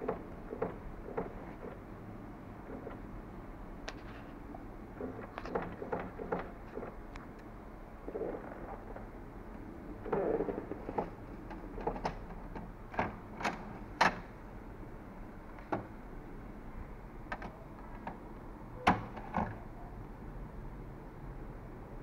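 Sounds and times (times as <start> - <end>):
plastic clicks and knocks: 10.0 - 14.3, 15.6 - 15.9, 17.3 - 18.2.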